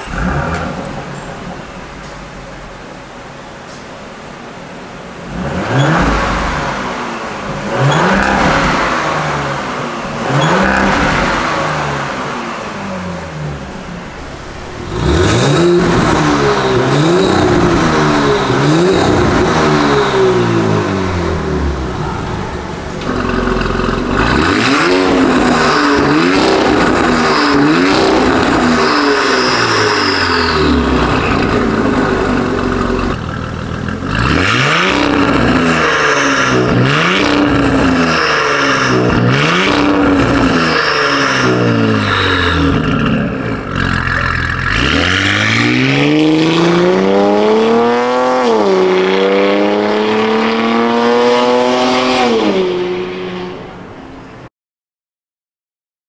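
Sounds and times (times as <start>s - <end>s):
car accelerating hard: 0.0s - 3.4s, 5.1s - 54.5s
car engine revving: 0.0s - 54.5s.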